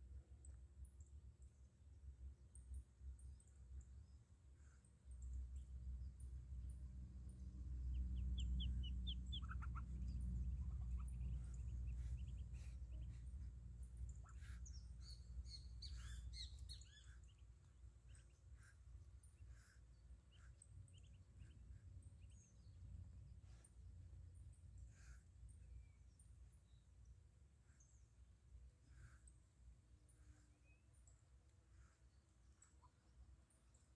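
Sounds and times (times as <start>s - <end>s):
low rumble: 6.2s - 15.8s
ducklings peeping: 7.8s - 22.4s.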